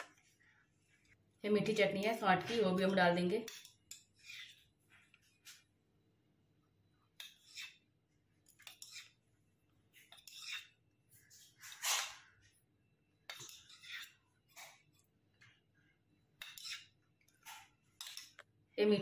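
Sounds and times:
spoon scraping steel bowl: 0:02.0 - 0:05.6, 0:07.2 - 0:09.3, 0:09.9 - 0:12.4, 0:13.3 - 0:15.1, 0:16.4 - 0:18.4.

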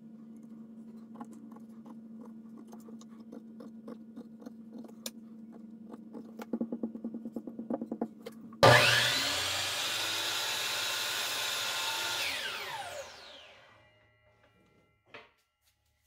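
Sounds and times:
steady low hum: 0:00.0 - 0:09.1
pencil scratching on wood: 0:00.8 - 0:08.1.

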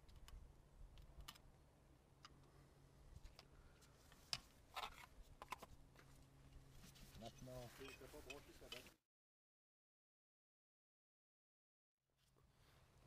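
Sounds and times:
small metal clicks: 0:00.0 - 0:01.5.

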